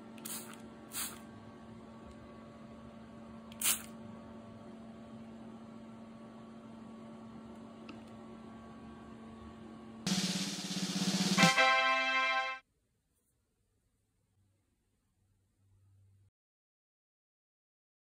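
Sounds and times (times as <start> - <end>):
spray bottle hissing: 0.2 - 1.2, 3.6 - 3.9.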